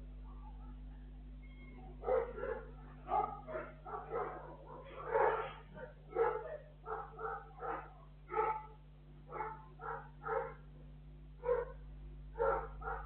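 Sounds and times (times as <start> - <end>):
steady electrical hum: 0.0 - 13.0
dog barking: 1.7 - 10.7, 11.4 - 11.8, 12.4 - 13.0.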